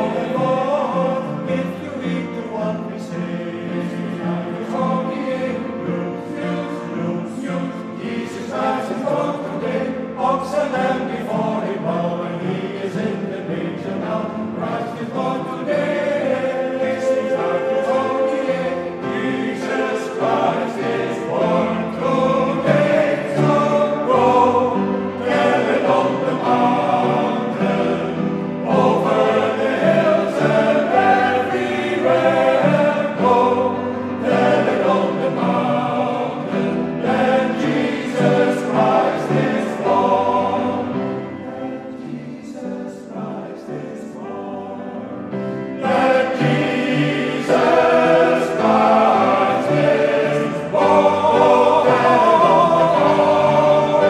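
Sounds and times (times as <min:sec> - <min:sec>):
mixed choir singing: 0:00.0 - 0:54.0.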